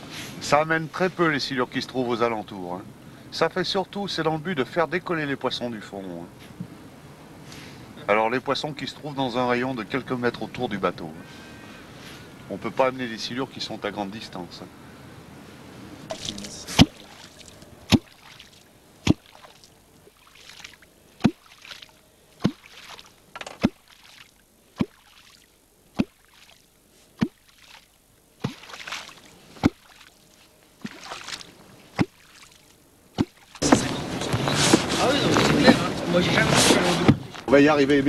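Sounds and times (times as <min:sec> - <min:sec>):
wooden clonk striking water: 0:16.1 - 0:26.6, 0:27.2 - 0:30.2, 0:30.8 - 0:33.9
water splash: 0:16.1 - 0:30.2, 0:30.8 - 0:33.9.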